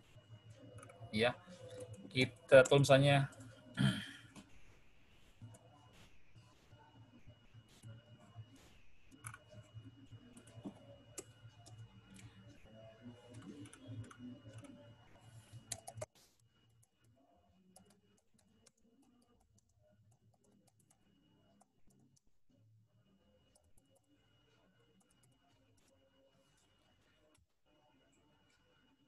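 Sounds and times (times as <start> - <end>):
typing on computer keyboard: 15.6 - 16.1.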